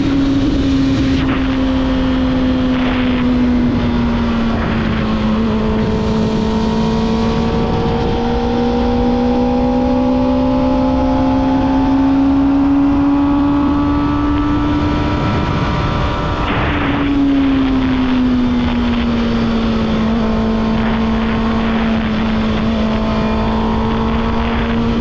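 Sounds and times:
motorcycle engine at high revs: 0.0 - 25.0
wind rush on microphone: 0.0 - 25.0.

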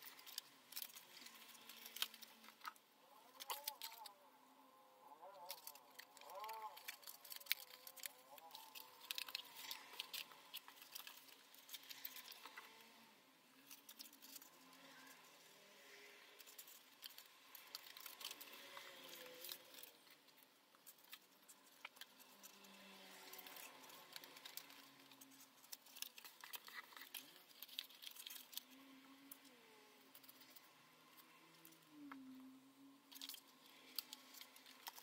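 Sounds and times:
paper rustling and crinkling: 0.0 - 4.1, 5.5 - 12.9, 16.4 - 29.4.

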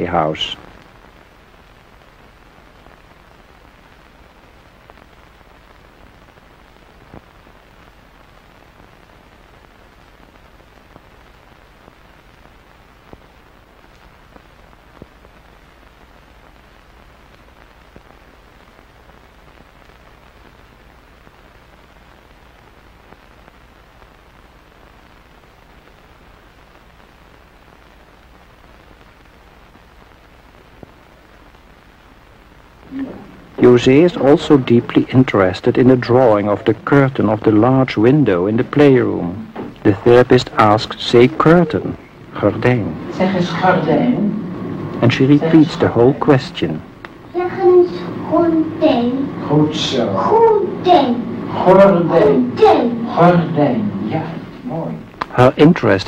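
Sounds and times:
film soundtrack hiss: 0.0 - 56.0
faint clicks: 47.0 - 47.2.

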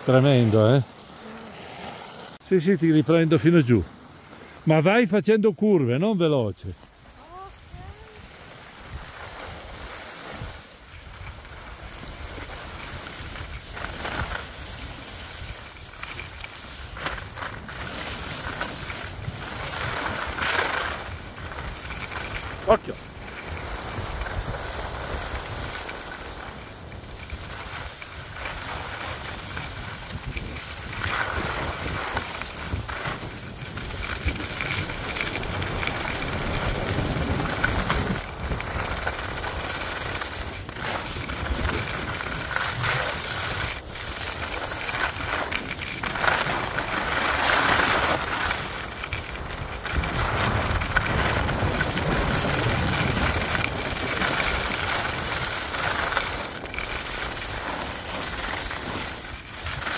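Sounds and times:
skis scraping over snow: 0.0 - 59.9
wind on microphone: 17.3 - 56.6.

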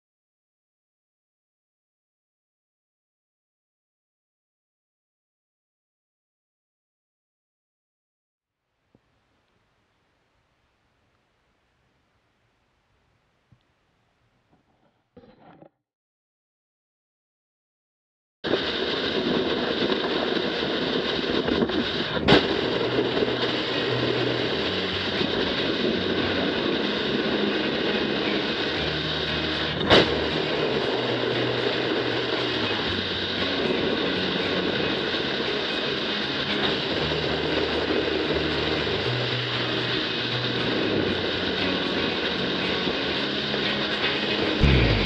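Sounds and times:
distorted rock music: 21.8 - 45.0
sharp crash hits: 44.6 - 45.0.

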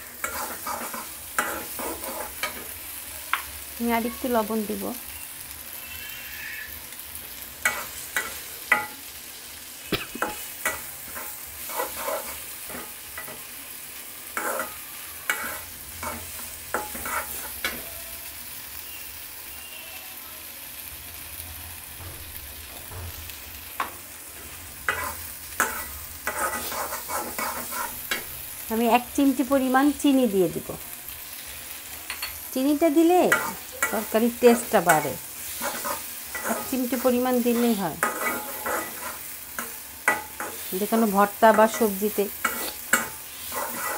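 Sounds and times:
spatula scraping a pan: 0.0 - 2.8, 7.6 - 9.2, 10.2 - 13.6, 14.2 - 17.9, 23.8 - 28.4, 33.3 - 43.9
low frying sizzle: 0.0 - 43.9.

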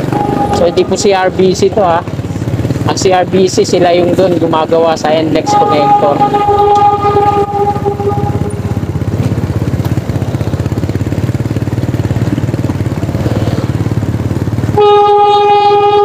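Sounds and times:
steady pitched tone: 0.0 - 2.1, 5.2 - 9.2
motor scooter engine running: 0.0 - 16.0
road and wind noise: 0.0 - 16.0.

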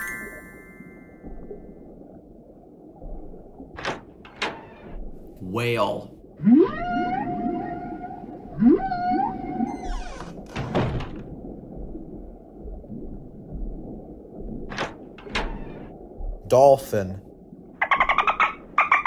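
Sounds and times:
whale moans: 6.4 - 10.0.

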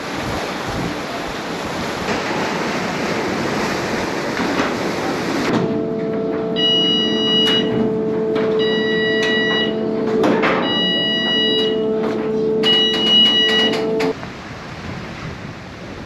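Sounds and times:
ferry engines humming: 0.0 - 14.8
warning beeper long beeps: 6.2 - 14.1
knocks: 7.4 - 14.2.

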